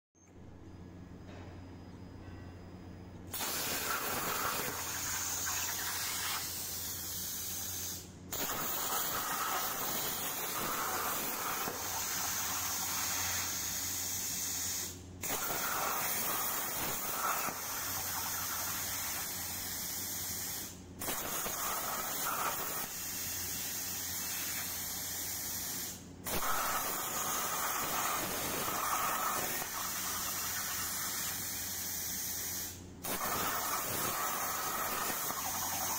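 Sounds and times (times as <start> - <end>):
steady low hum: 0.2 - 5.9
plasma torch arc hissing: 3.3 - 35.9.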